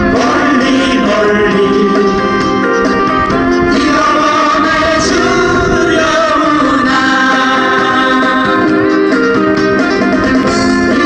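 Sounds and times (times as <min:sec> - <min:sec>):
person singing: 0:00.0 - 0:02.5, 0:03.6 - 0:09.1
guitars strumming: 0:00.0 - 0:11.0.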